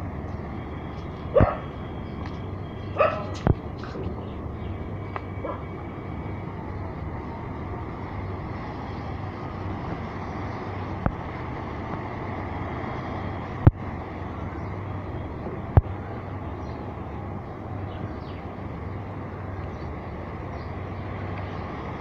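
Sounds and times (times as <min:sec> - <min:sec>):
outdoor rumble and hiss: 0:00.0 - 0:22.0.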